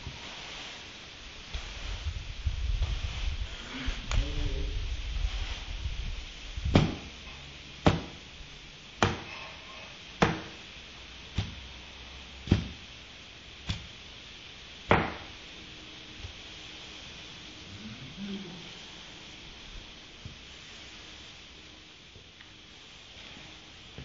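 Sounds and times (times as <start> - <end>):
broom whacking a tiled floor: 0.0 - 24.0.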